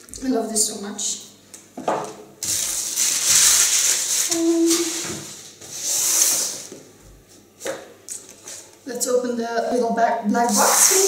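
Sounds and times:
packaging rustling: 0:02.4 - 0:05.6.

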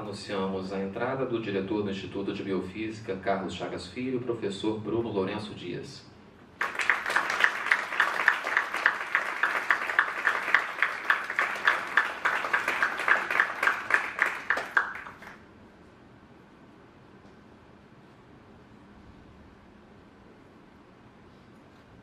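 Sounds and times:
audience applauding: 0:06.6 - 0:15.4
rhythmic clapping: 0:06.6 - 0:15.4.

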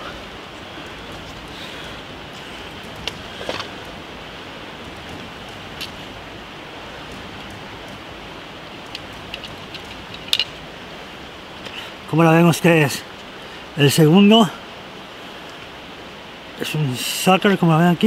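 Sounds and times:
river water rushing: 0:00.0 - 0:18.0
light clicks and taps: 0:08.8 - 0:10.6.

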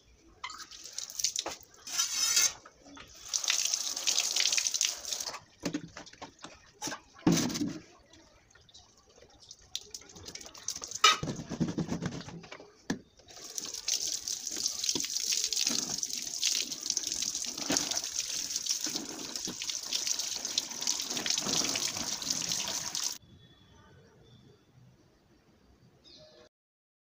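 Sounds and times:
water splashing on concrete: 0:03.1 - 0:07.5, 0:09.5 - 0:11.2, 0:13.3 - 0:23.2.

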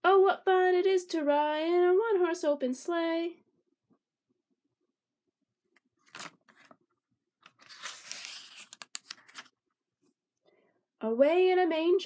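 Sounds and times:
paper page turning: 0:06.0 - 0:06.8, 0:07.4 - 0:09.6.

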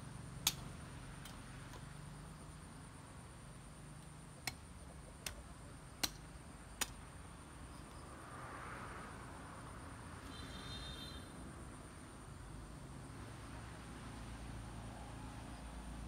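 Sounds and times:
knife chopping wooden branches: 0:00.4 - 0:02.0, 0:04.1 - 0:07.1.

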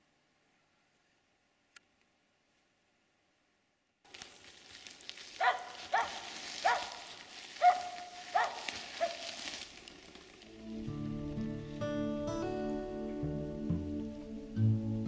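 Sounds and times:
dog barking sharply: 0:05.4 - 0:07.0, 0:07.6 - 0:09.3.

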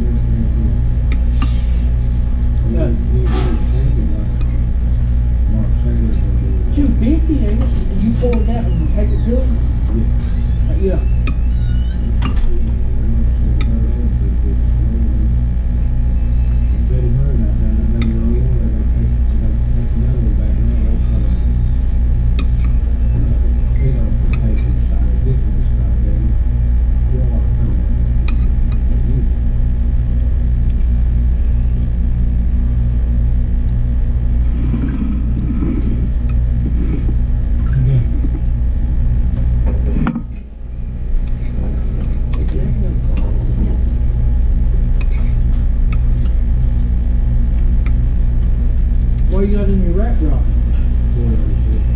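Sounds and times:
low mechanical hum: 0:00.0 - 0:51.9
faint murmuring voices: 0:02.6 - 0:04.7, 0:05.4 - 0:26.4, 0:27.1 - 0:28.0, 0:34.5 - 0:38.5, 0:41.2 - 0:44.1.

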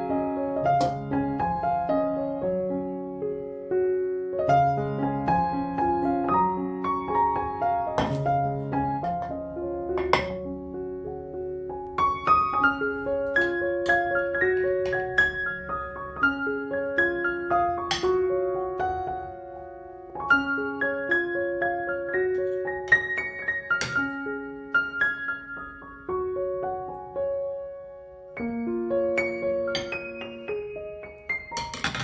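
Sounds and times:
slow piano music: 0:00.0 - 0:32.0.

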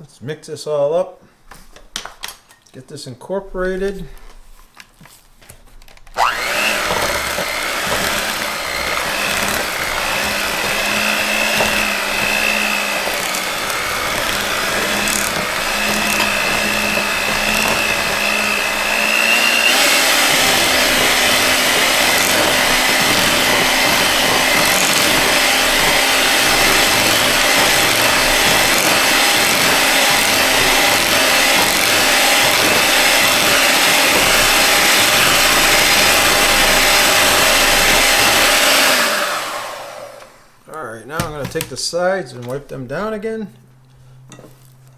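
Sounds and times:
electric hand mixer whirring: 0:06.1 - 0:40.6.

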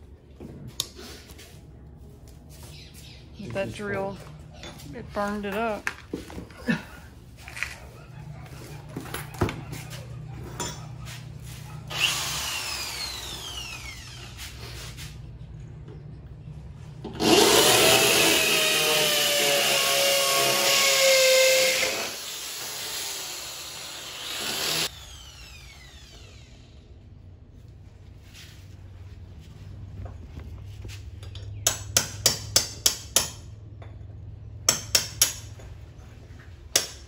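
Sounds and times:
electric drill cutting: 0:11.9 - 0:14.4, 0:17.2 - 0:26.8.

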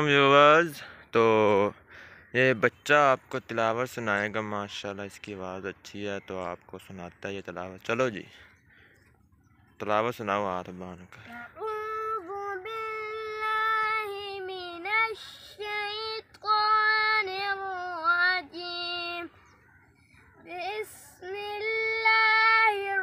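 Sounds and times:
boy chanting: 0:11.2 - 0:23.0.

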